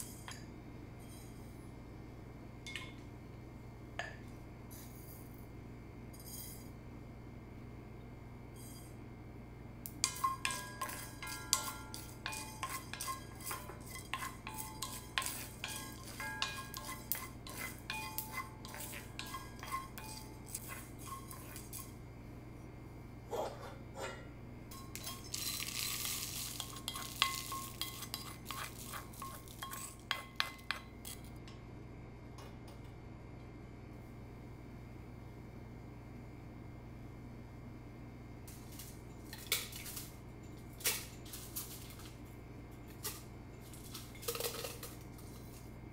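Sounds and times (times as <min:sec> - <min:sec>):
spoon stirring spices in skillet: 0:09.9 - 0:22.0, 0:24.7 - 0:31.5.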